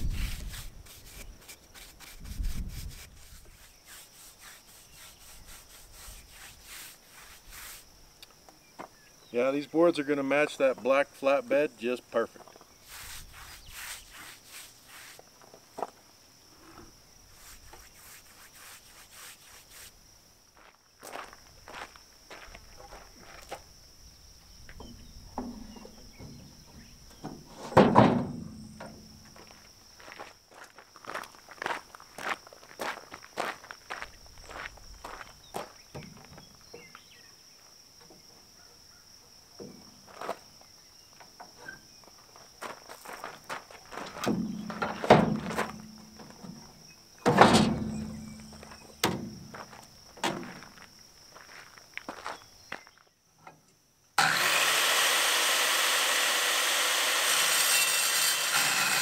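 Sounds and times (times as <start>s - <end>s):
paintbrush scrubbing on wood: 0.0s - 7.9s, 12.8s - 15.2s, 17.3s - 20.0s
high insect trill: 0.0s - 54.2s.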